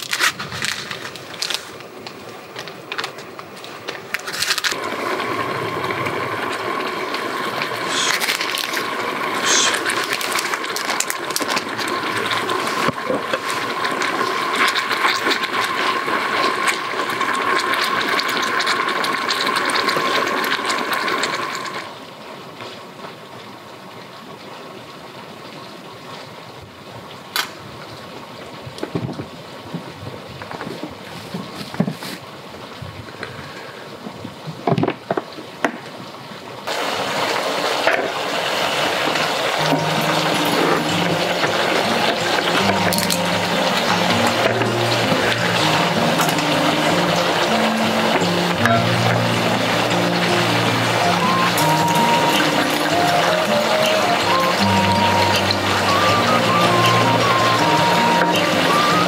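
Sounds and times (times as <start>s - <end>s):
food sizzling in oil: 4.2s - 22.0s, 36.7s - 59.0s.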